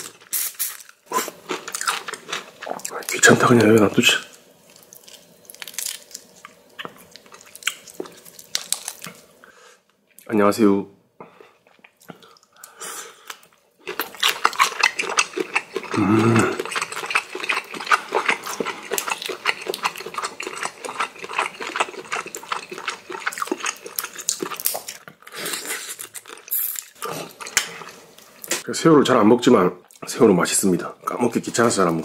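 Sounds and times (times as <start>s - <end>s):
shrimp shells cracking: 4.8s - 6.5s, 7.3s - 9.2s
person humming grunt: 16.0s - 16.6s.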